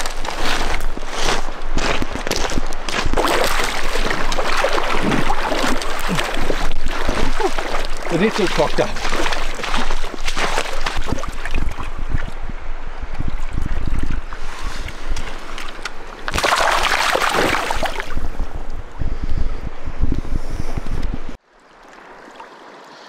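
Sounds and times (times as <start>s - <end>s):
wind buffeting microphone: 0.0s - 16.4s, 17.0s - 21.4s
river water rushing: 3.2s - 11.9s.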